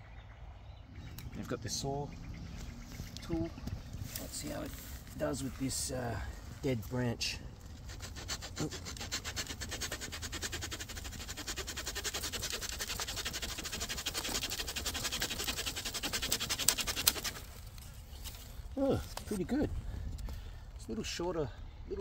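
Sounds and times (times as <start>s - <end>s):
saw cutting through branch: 4.1s - 19.6s.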